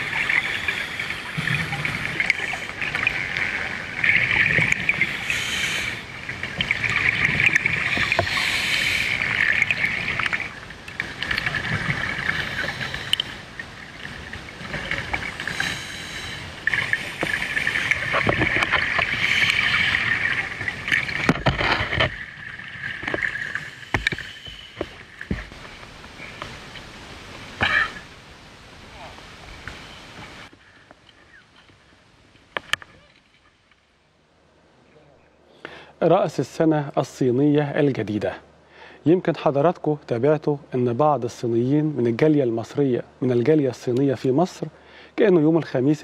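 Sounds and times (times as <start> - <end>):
underwater bubbling and gurgling: 0.0 - 30.5.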